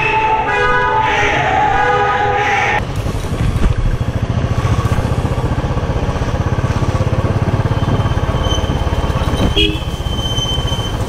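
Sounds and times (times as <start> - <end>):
motorcycle engine running: 2.8 - 11.0.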